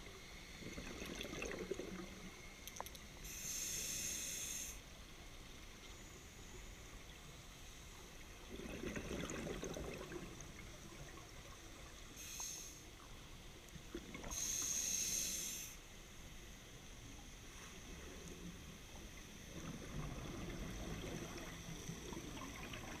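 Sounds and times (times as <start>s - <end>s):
regulator inhalation hiss: 3.2s - 4.9s, 12.1s - 13.0s, 14.3s - 16.0s
bubbling exhalation underwater: 8.5s - 10.3s.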